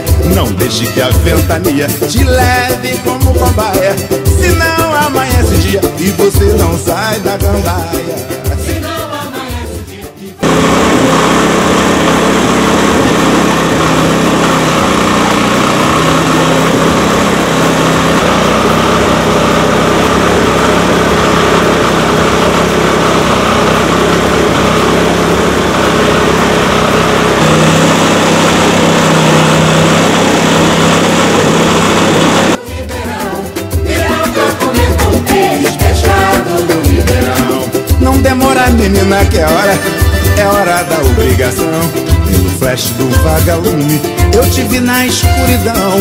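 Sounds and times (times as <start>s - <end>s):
small stationary engine running: 10.4s - 32.6s.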